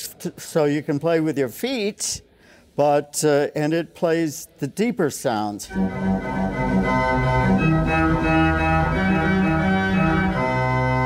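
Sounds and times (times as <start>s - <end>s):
pipe organ playing chords: 5.6s - 11.0s.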